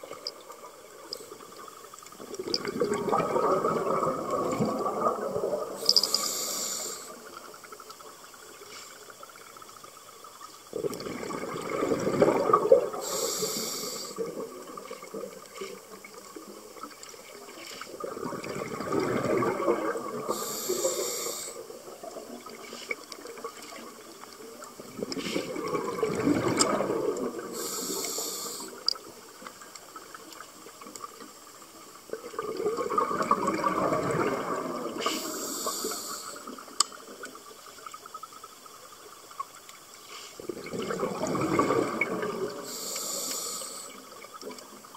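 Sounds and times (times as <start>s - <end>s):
gush of exhaled bubbles: 2.2s - 7.4s, 10.7s - 16.3s, 17.9s - 24.1s, 24.7s - 28.8s, 32.1s - 37.1s, 40.4s - 44.9s
hiss of inhaled air: 5.8s - 7.4s, 12.9s - 14.3s, 20.2s - 21.7s, 27.5s - 28.9s, 35.0s - 36.6s, 40.0s - 40.4s, 42.6s - 44.1s.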